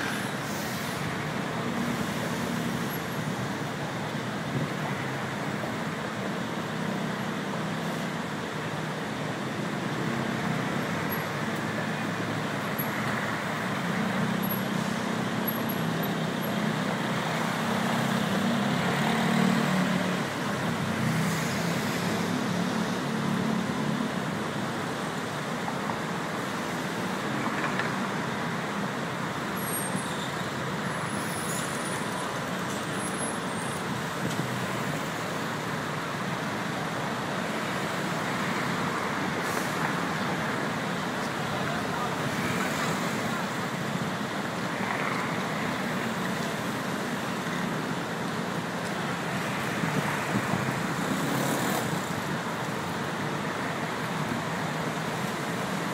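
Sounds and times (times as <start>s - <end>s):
road traffic: 0.0s - 55.9s.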